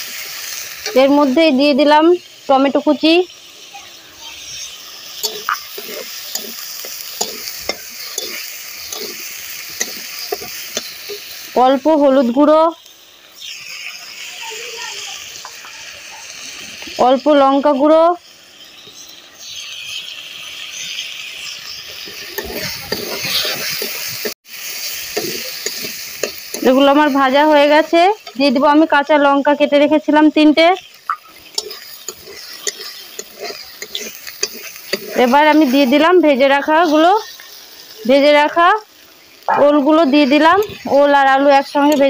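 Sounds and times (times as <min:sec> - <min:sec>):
sizzle of frying in oil: 0:00.0 - 0:42.0
metal spatula scraping a pan: 0:04.3 - 0:11.5, 0:19.6 - 0:28.9, 0:30.8 - 0:38.3, 0:39.6 - 0:42.0.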